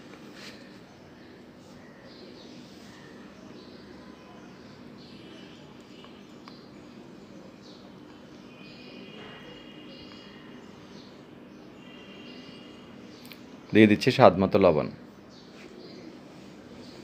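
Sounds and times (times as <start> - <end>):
faint bird chirps: 0.5 - 13.8.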